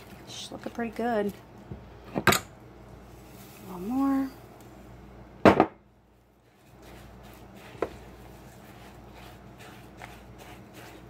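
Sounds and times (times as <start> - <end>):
spatula scraping thick mixture: 6.3 - 11.0.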